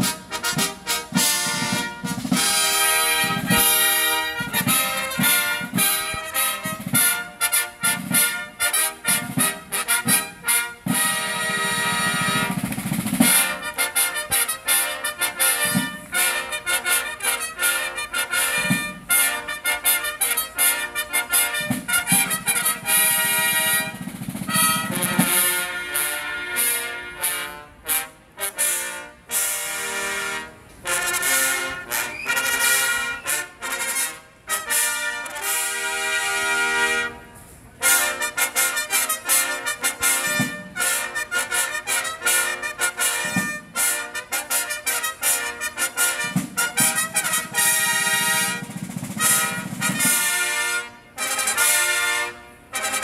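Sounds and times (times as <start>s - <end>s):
field drums beating: 0.0s - 26.3s, 37.9s - 52.2s
trumpet fanfare: 0.0s - 53.0s.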